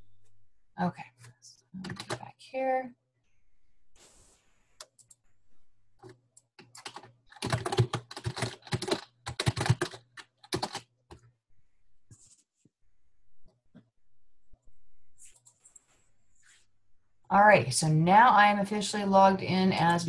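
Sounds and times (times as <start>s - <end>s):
typing on a keyboard: 1.8s - 2.3s, 6.0s - 11.3s.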